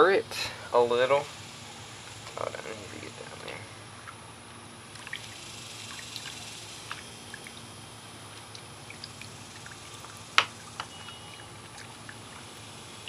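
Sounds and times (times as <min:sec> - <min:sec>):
small ticks: 0:04.9 - 0:07.7, 0:08.3 - 0:13.0
liquid sloshing in a bucket: 0:04.9 - 0:13.0.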